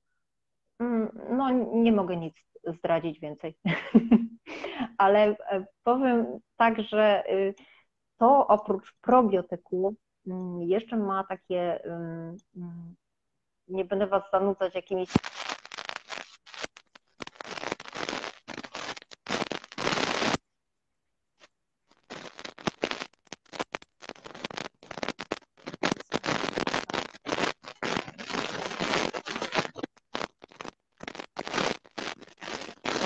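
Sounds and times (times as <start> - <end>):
fingers rubbing earphone microphone: 15.1 - 20.4, 21.9 - 33.0.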